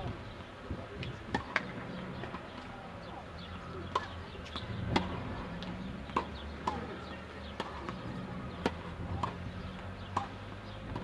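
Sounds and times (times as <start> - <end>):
tennis ball struck by rackets: 1.0 - 2.5, 3.8 - 11.0
tennis ball bouncing on court: 1.0 - 2.6, 3.8 - 11.0.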